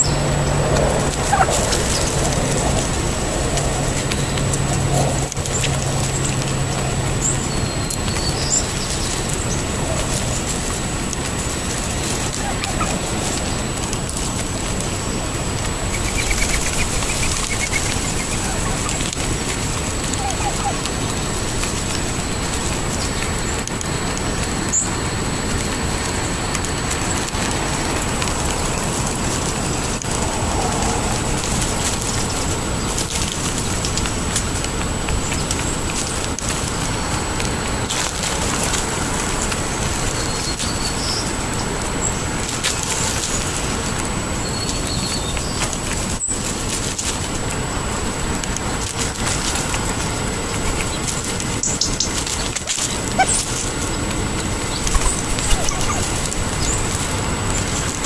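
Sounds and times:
steady rushing noise: 0.0s - 58.0s
turkeys pecking on pavement: 0.0s - 58.0s
faint bird chirps: 54.7s - 56.8s.

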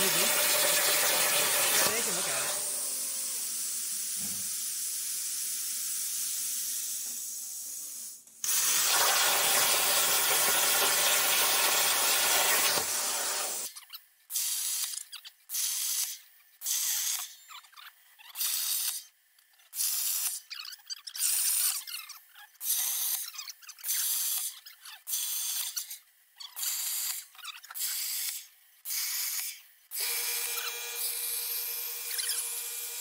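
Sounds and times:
plasma arc cutting hiss: 0.0s - 13.7s
short hissing bursts: 1.1s - 9.7s.

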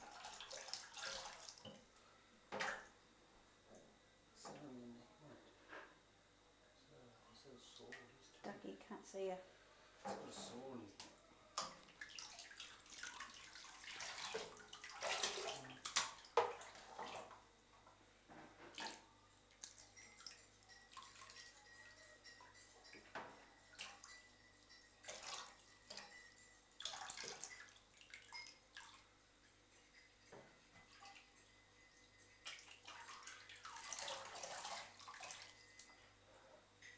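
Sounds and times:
bathwater splashing and trickling: 0.0s - 1.8s, 11.6s - 17.5s, 18.6s - 22.5s, 23.5s - 29.4s, 30.2s - 31.5s, 32.1s - 36.0s.

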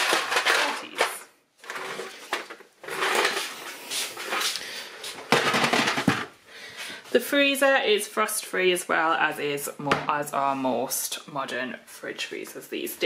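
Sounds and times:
ice cubes rattling in plastic bin: 0.0s - 3.7s, 5.3s - 6.3s
plastic knocks: 5.3s - 6.3s.

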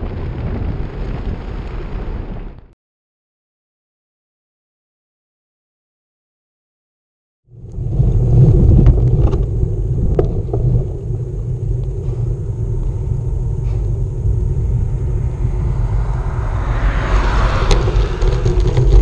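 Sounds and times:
wind buffeting microphone: 0.0s - 2.7s, 7.6s - 19.0s.

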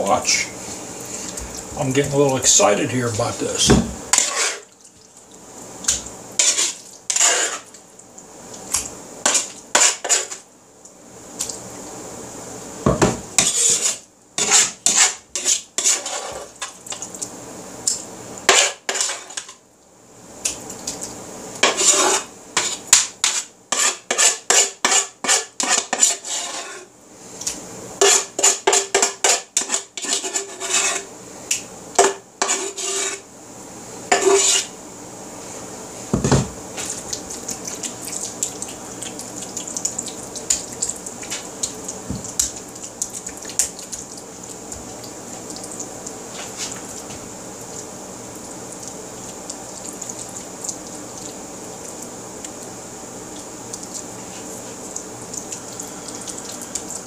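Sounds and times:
metal spoon scraping wooden bowl: 4.1s - 4.7s, 6.4s - 7.7s, 9.3s - 10.4s, 13.4s - 16.5s, 18.5s - 19.4s, 21.6s - 26.9s, 28.0s - 31.1s, 32.0s - 33.2s, 34.1s - 34.7s.

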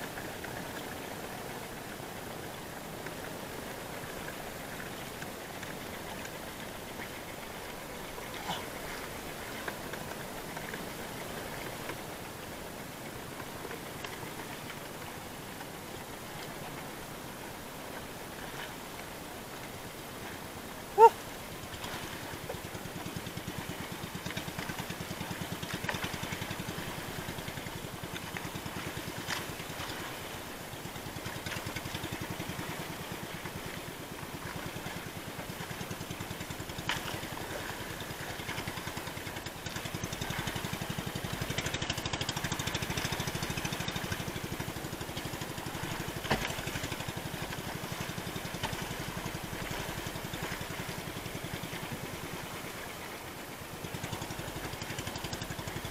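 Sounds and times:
boat engine running: 0.0s - 55.9s.

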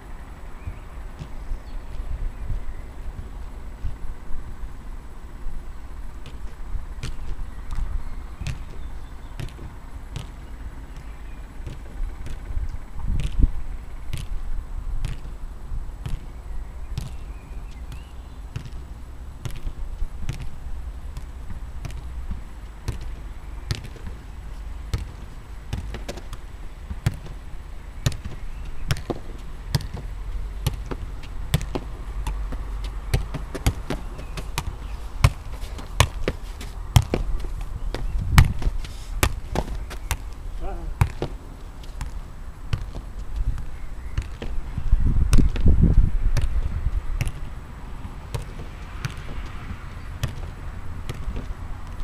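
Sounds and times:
low steady rumble: 0.0s - 52.0s
football thudding off body: 24.8s - 27.4s, 28.0s - 41.4s, 45.3s - 45.8s.

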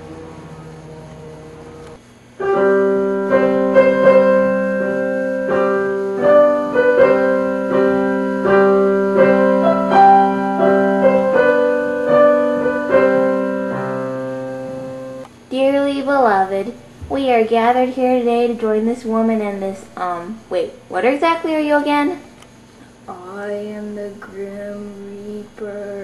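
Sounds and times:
piano playing slow held chords: 0.0s - 15.3s.

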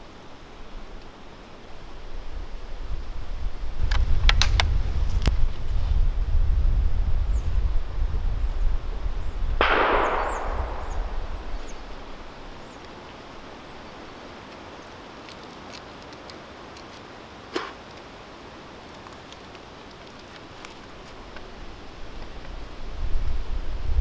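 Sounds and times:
low background noise: 0.0s - 24.0s
rifle shot echoing: 9.6s - 12.6s.

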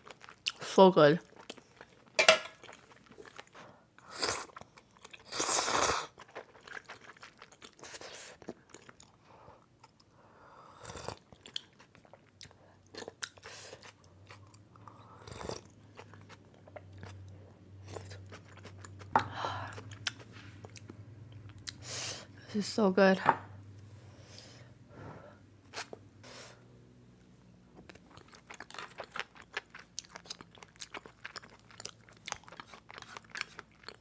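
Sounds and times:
chewing and mouth clicks: 0.0s - 3.6s, 4.4s - 9.2s, 11.0s - 21.8s, 27.8s - 34.0s
faint low hum: 0.0s - 34.0s.

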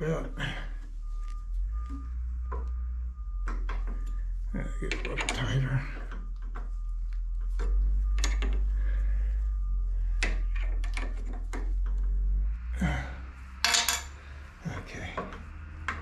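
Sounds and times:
steady low hum: 0.0s - 16.0s
metal clicks and knocks: 4.9s - 6.7s, 7.4s - 8.7s, 10.2s - 12.1s.

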